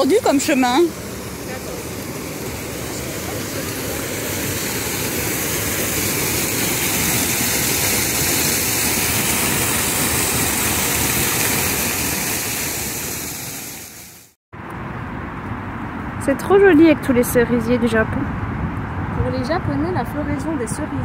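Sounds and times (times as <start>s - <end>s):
waterfall splashing into pond: 0.0s - 14.4s.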